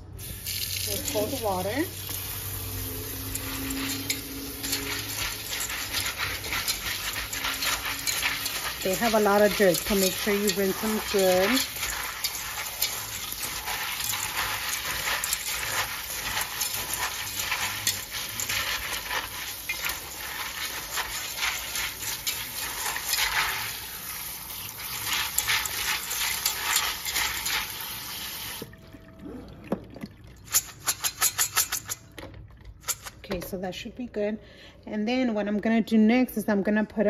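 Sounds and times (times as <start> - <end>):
sink sprayer running: 0.0 - 28.7
beans clicking and rustling: 3.2 - 23.8.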